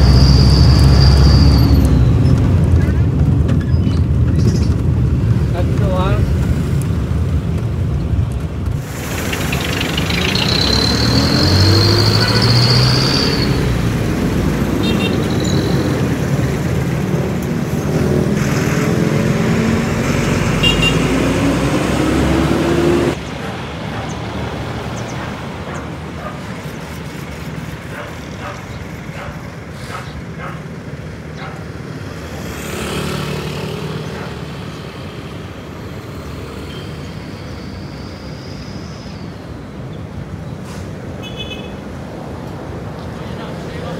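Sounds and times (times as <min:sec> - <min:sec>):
road traffic: 0:00.0 - 0:43.9
brief high squeal: 0:00.1 - 0:02.1
vehicle engine speeding up: 0:08.5 - 0:14.9, 0:15.7 - 0:23.3, 0:32.0 - 0:36.7.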